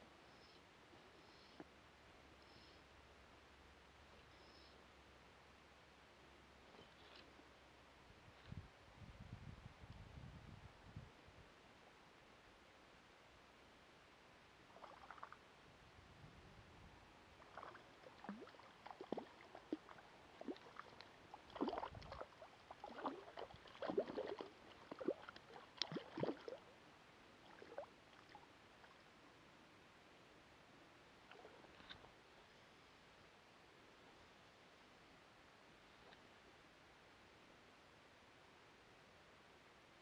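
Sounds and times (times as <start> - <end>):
fish splashing in water: 17.4 - 26.6.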